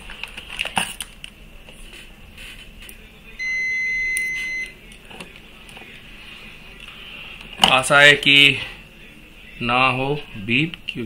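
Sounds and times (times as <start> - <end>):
multimeter high beep: 3.4 - 4.8.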